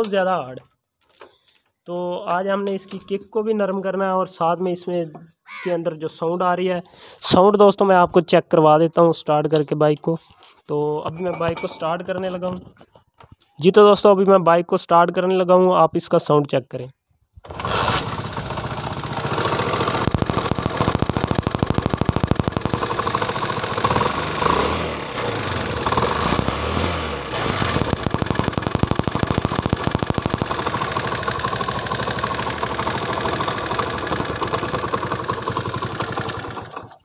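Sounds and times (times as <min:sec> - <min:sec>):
fast tappet ticking: 0:17.6 - 0:36.9
motorcycle engine idling: 0:17.9 - 0:37.0.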